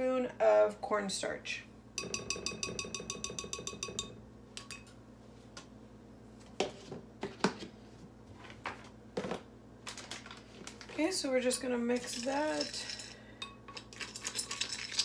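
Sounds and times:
metal spoon tapping ceramic bowl: 2.0 - 4.9.

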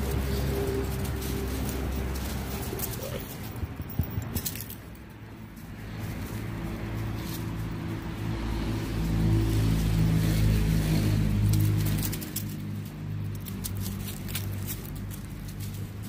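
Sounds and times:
light clicking and rustling: 0.0 - 7.8, 11.4 - 16.0
vehicle engine humming: 0.0 - 16.0.

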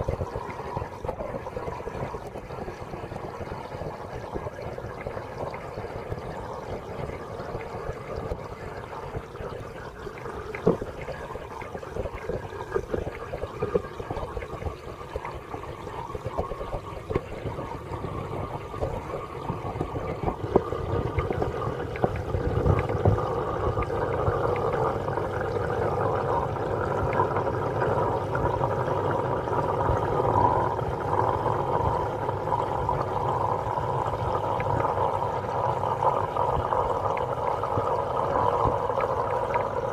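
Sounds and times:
water bubbling in aquarium: 0.0 - 39.9.

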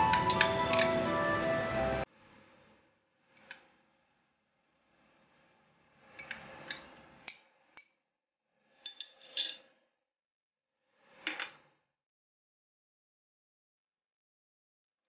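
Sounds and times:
container clinking on china: 0.0 - 1.1.

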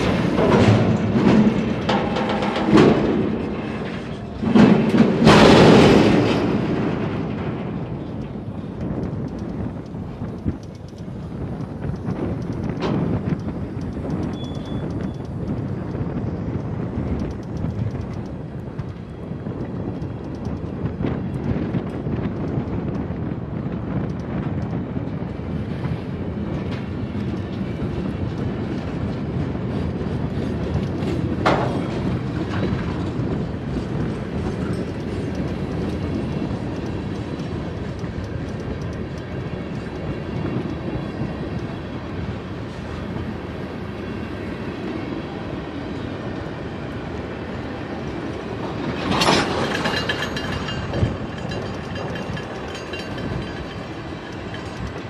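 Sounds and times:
train wheels rumbling on rails: 0.0 - 55.0
high wheel squeal: 14.3 - 15.2.

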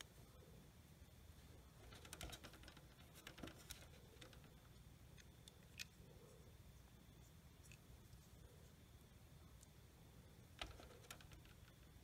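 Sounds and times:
small parts clicking: 1.8 - 6.0, 10.5 - 12.0.

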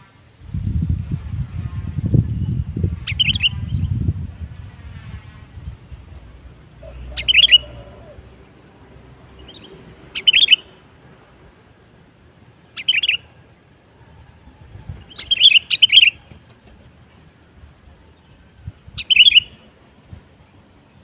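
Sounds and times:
bulbul calling: 6.8 - 8.6, 9.3 - 10.8, 12.6 - 13.3, 15.0 - 16.5, 18.8 - 19.7.

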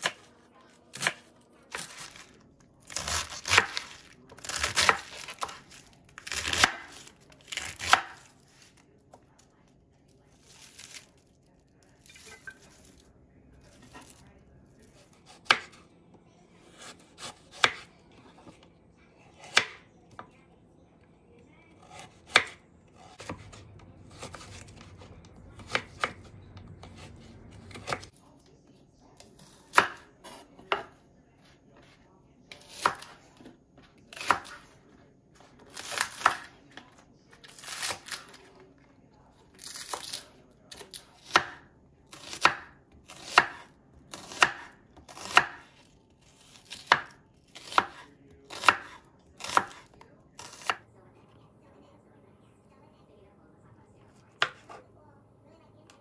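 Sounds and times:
knife slicing vegetables on board: 0.0 - 0.3, 0.9 - 8.8, 14.8 - 15.8, 16.6 - 18.6, 19.4 - 20.2, 21.8 - 28.1, 29.3 - 31.0, 31.8 - 33.5, 34.1 - 34.7, 35.7 - 38.4, 39.6 - 50.8, 54.4 - 54.8.

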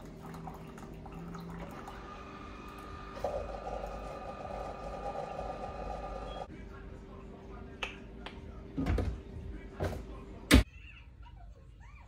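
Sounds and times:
coffee brewer humming: 0.0 - 6.5.

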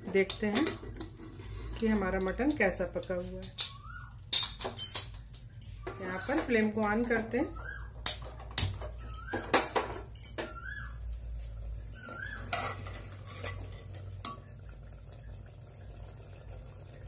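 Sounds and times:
metal spoon scraping in a pot: 0.2 - 2.4, 4.8 - 7.3, 12.0 - 14.5.

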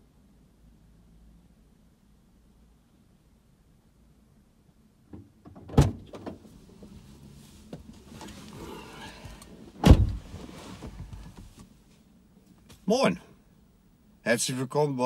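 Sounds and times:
car door shutting thud: 5.1 - 6.4, 9.0 - 11.6
car door opening clunk: 5.1 - 6.9, 7.7 - 11.6
rustling and shifting in seat: 5.1 - 13.1.

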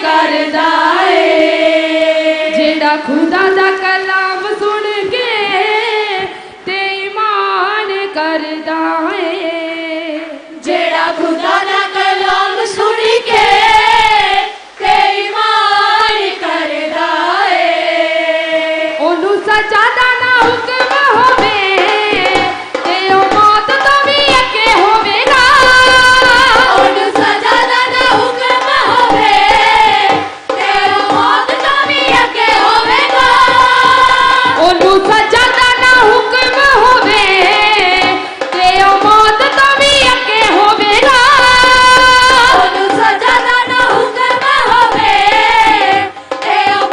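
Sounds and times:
women singing through microphones: 0.0 - 46.9
drum beat: 19.5 - 46.9.

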